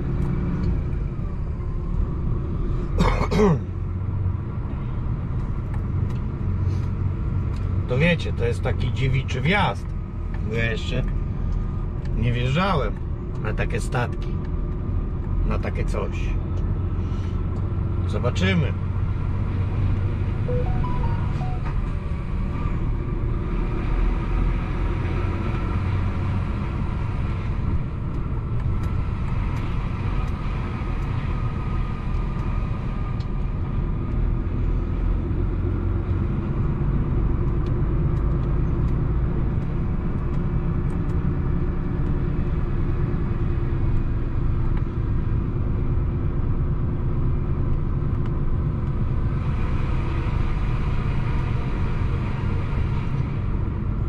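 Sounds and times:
truck diesel engine rumbling: 0.0 - 54.0.

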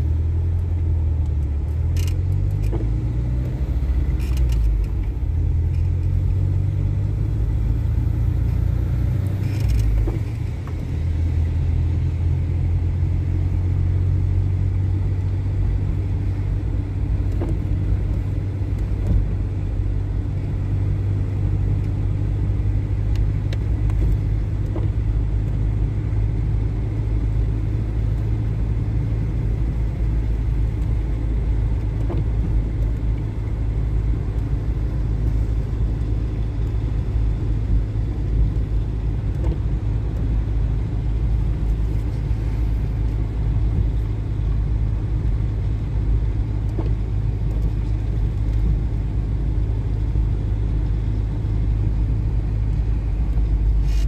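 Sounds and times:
car driving on a wet road: 0.0 - 54.0.

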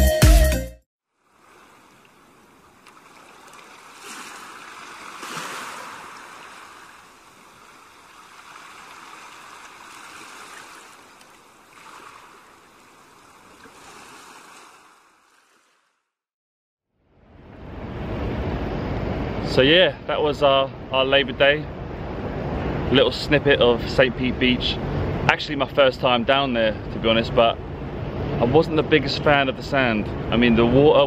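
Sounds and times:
small waves breaking on shore: 1.1 - 16.1.

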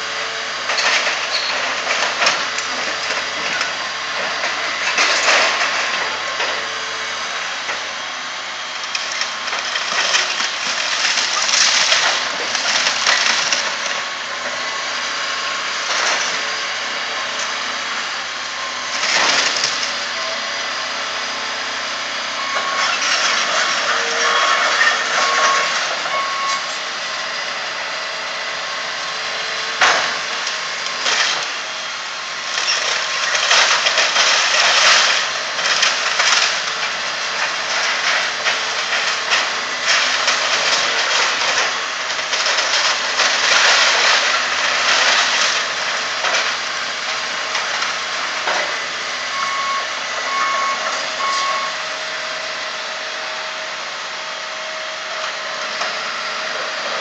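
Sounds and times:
excavator diesel engine under load: 0.0 - 57.0
breaking debris: 0.6 - 6.7, 8.8 - 14.6, 18.8 - 20.1, 22.6 - 26.6, 29.8 - 49.0
bucket crunching wood and metal: 8.0 - 16.8, 29.4 - 49.3
back-up alarm beeping: 25.2 - 26.8, 49.3 - 51.8.

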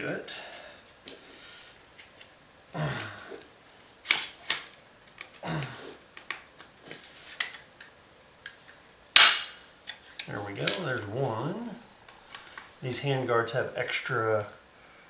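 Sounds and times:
loud plastic snap: 8.5 - 10.0.

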